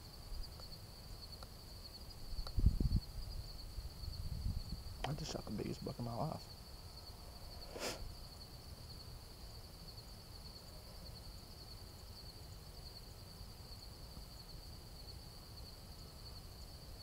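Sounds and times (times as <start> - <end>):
insects trilling: 0.0 - 17.0
wind rumble on microphone: 2.2 - 5.1.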